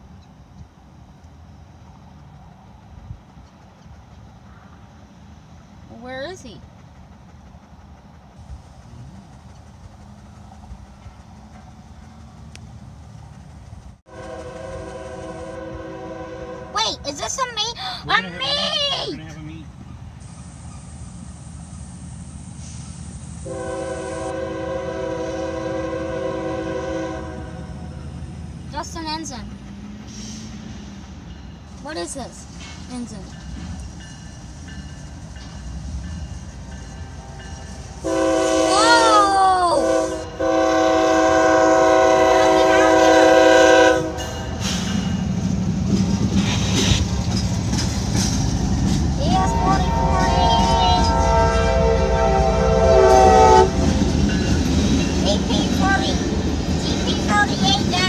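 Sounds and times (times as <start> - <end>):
locomotive air horn blast: 14.1 - 16.8, 23.4 - 28.0, 38.0 - 44.6, 49.4 - 54.2.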